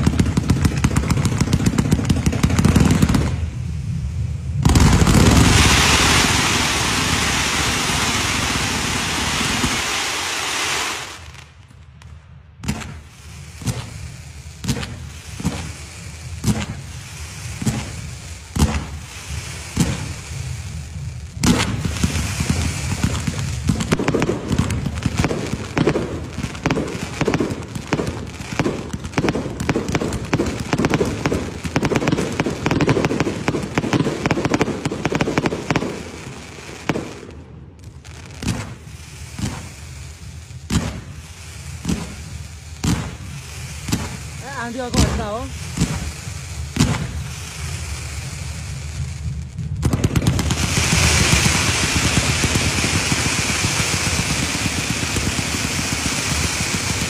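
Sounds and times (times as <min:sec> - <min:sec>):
fireworks dense crackling: 0:00.0 - 0:57.0
fireworks rushing hiss: 0:00.0 - 0:57.0
fireworks sharp bangs: 0:00.0 - 0:57.0.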